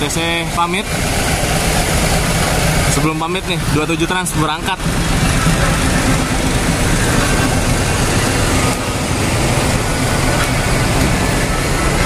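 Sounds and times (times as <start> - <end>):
bus diesel engine running: 0.0 - 12.0.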